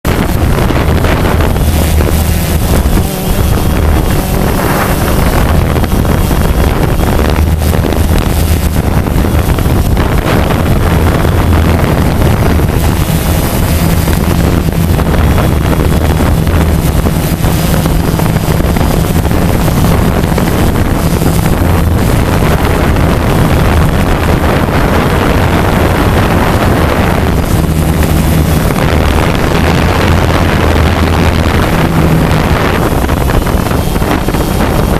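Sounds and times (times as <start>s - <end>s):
drone propellers humming: 0.0s - 34.9s
wind on microphone: 0.0s - 34.9s.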